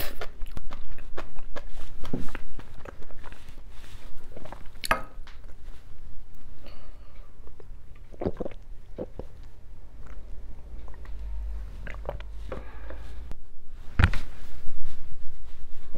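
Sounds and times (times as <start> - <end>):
person gulping water: 7.6 - 13.1.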